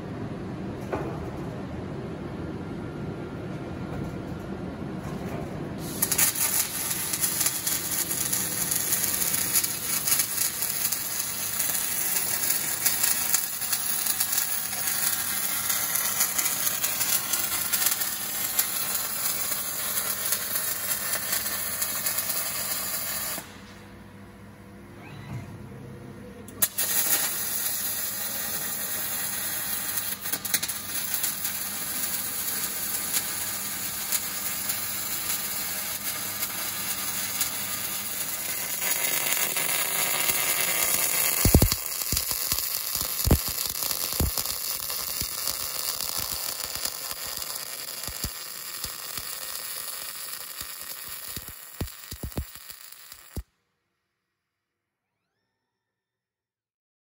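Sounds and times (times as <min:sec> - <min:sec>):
welding arc crackling and sizzling: 0:05.8 - 0:23.8, 0:26.6 - 0:53.5
spatter pops: 0:41.1 - 0:53.4.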